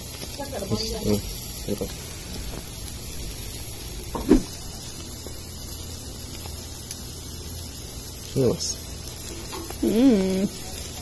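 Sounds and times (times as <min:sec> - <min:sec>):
brief knock: 0:04.2 - 0:04.5
fork turning shrimp on grill: 0:09.1 - 0:11.0.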